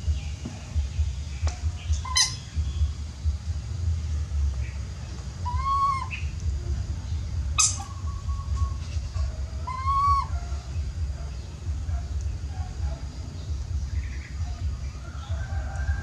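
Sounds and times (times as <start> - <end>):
steady low hum: 0.0 - 16.0
baby monkey whistling calls: 1.8 - 2.6, 5.4 - 6.4, 7.5 - 10.7.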